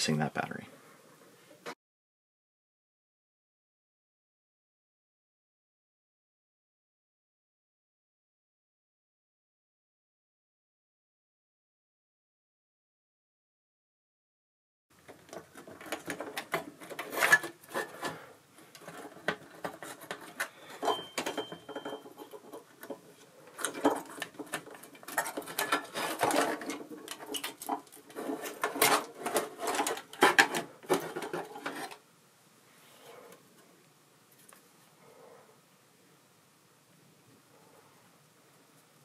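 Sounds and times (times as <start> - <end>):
thin squeak: 20.4 - 22.4.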